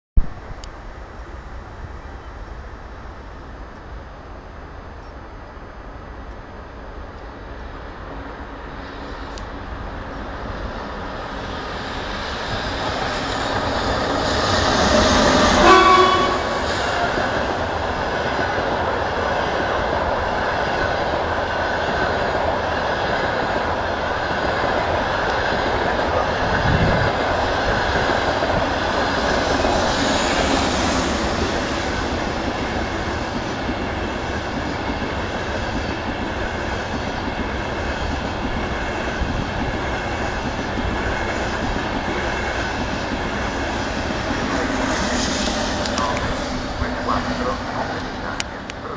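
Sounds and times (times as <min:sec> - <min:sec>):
train carriages rushing on rails: 0:06.0 - 0:48.9
train horn blast: 0:14.8 - 0:17.4.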